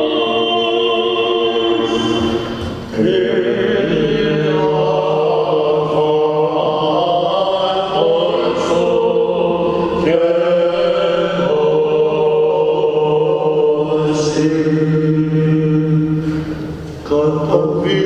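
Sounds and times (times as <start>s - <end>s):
low drone note: 0.0s - 12.4s.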